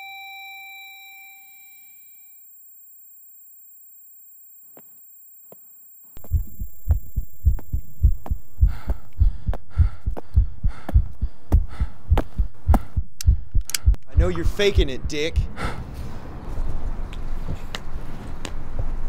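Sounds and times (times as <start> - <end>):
heartbeat thumps: 6.2 - 15.8
faint clicks: 13.2 - 14.1.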